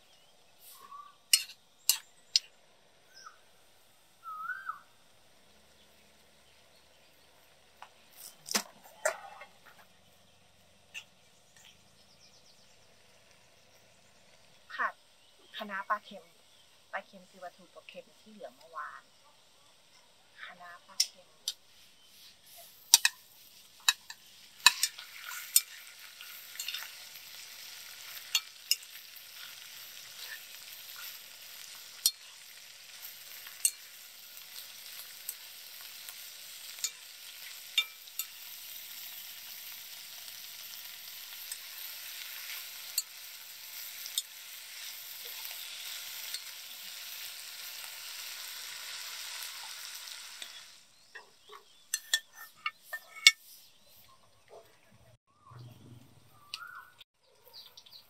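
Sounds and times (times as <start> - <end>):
food sizzling in a hot pan: 0.0 - 11.0, 12.6 - 53.4
metal spatula scraping a pan: 0.6 - 2.5, 22.0 - 39.2, 51.4 - 53.8.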